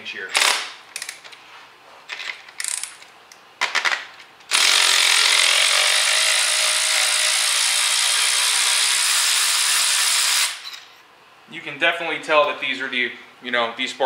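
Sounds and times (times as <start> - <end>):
hand ratchet clicking: 2.6 - 3.1
electric ratchet motor running: 4.5 - 10.6.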